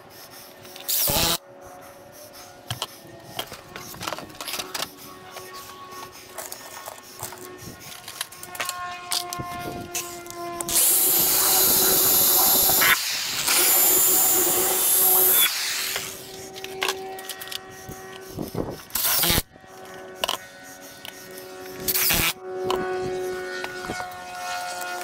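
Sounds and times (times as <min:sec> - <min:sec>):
power drill boring into wood: 0:08.5 - 0:16.9, 0:18.9 - 0:19.5.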